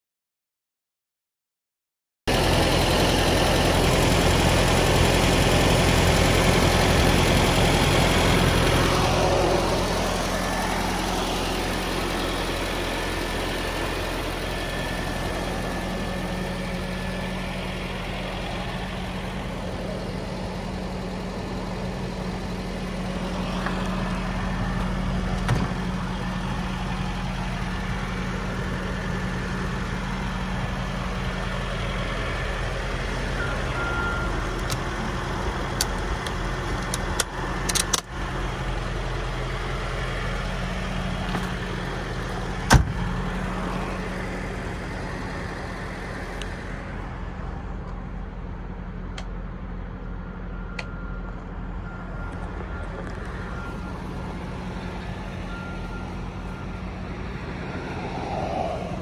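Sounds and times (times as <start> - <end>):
pickup engine idling: 2.3 - 58.6.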